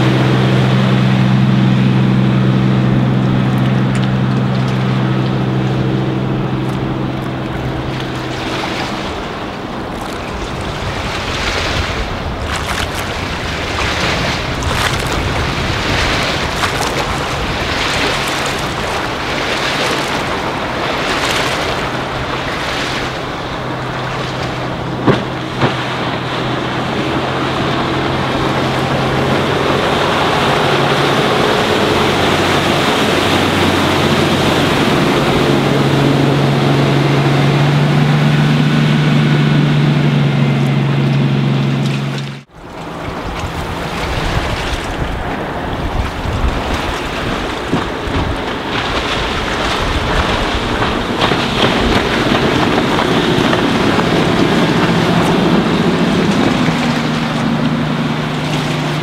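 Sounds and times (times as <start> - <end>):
boat engine hum: 0.0 - 59.0
hull wash: 0.0 - 59.0
wind on microphone: 0.0 - 59.0.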